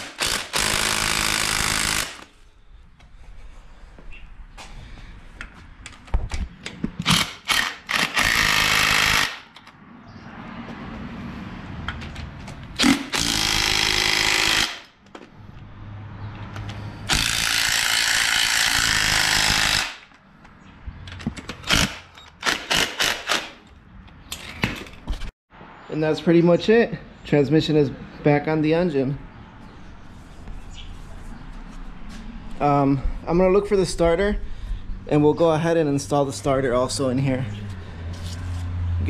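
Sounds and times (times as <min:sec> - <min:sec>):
impact wrench driving bolts: 0:00.0 - 0:02.3, 0:06.6 - 0:09.7, 0:12.8 - 0:14.9, 0:16.5 - 0:20.1, 0:21.1 - 0:23.7.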